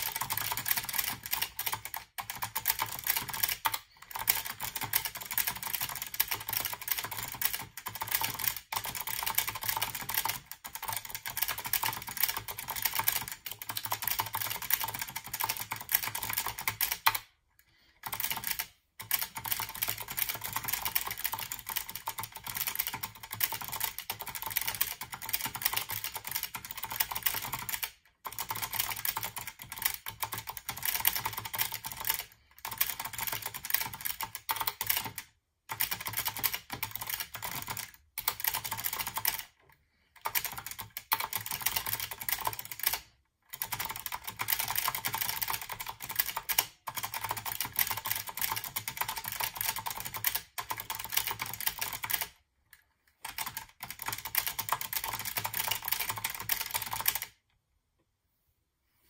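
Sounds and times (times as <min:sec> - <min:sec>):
fast typing on clicky keyboard: 0:00.0 - 0:52.4, 0:53.1 - 0:57.4.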